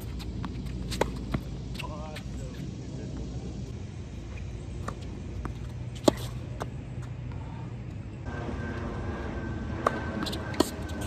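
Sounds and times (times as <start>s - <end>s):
tennis ball bouncing on hard court: 0.0s - 1.9s, 4.8s - 6.8s, 9.8s - 11.0s
low background hum: 0.0s - 11.0s.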